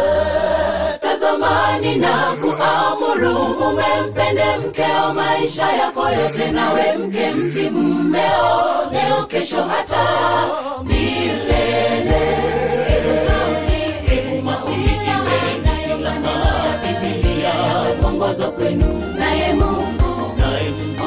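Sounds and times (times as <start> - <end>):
choir singing in harmony: 0.0 - 21.0
kick drum beat: 10.9 - 20.6
bass line: 10.9 - 21.0.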